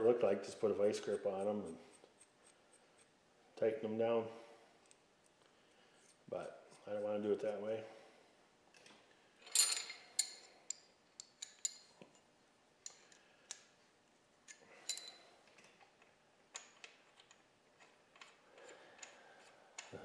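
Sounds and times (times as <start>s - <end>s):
steel wrenches clinking: 9.4s - 12.2s, 14.5s - 15.3s.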